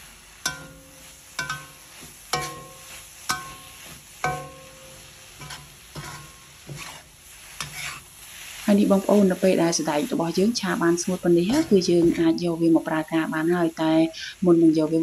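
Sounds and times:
utensil scraping metal wok: 0.0 - 13.1
faint sizzle: 0.0 - 15.0
wok knocking and ringing: 0.4 - 7.0.

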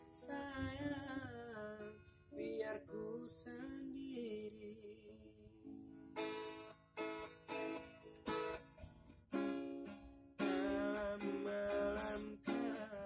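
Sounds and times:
acoustic guitar strumming: 0.0 - 13.0.

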